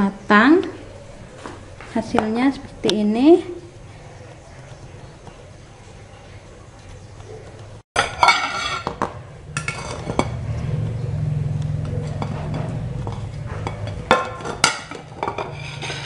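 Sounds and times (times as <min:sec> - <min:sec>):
plate and cake pan clinking: 0:08.0 - 0:10.4, 0:12.1 - 0:16.0.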